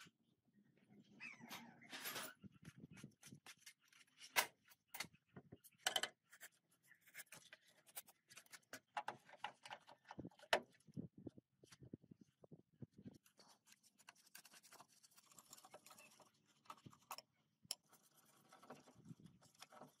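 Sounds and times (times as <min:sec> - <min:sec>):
clicks and scrapes on metal: 0:01.9 - 0:10.8.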